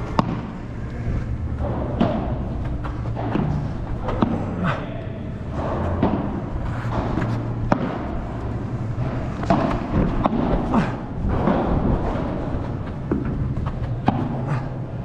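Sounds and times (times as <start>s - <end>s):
ball bouncing on court: 0.0s - 0.7s, 1.6s - 4.6s, 5.5s - 10.7s
padel ball hit by rackets: 0.1s - 0.6s, 1.7s - 4.6s, 5.9s - 8.3s, 9.4s - 10.7s, 14.0s - 14.5s.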